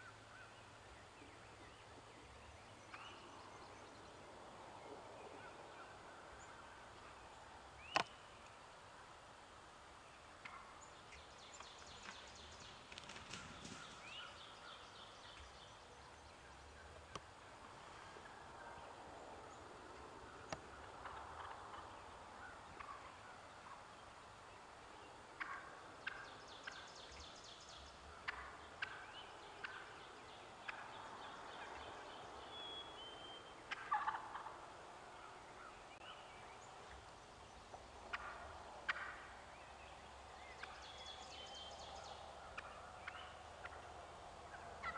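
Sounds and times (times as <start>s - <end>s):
turkeys calling: 20.0s - 24.0s, 25.3s - 32.0s, 33.1s - 37.1s, 38.0s - 39.4s, 40.5s - 40.9s, 41.9s - 44.9s.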